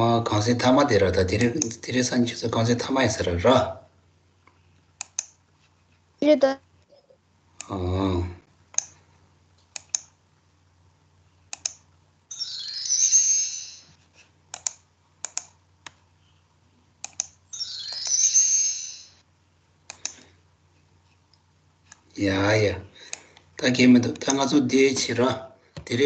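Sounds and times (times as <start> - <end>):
computer mouse clicking: 1.4 - 1.8, 4.5 - 5.4, 8.7 - 9.0, 9.6 - 10.2, 11.5 - 11.9, 14.5 - 16.0, 17.0 - 17.4, 19.9 - 20.3, 23.1 - 23.5.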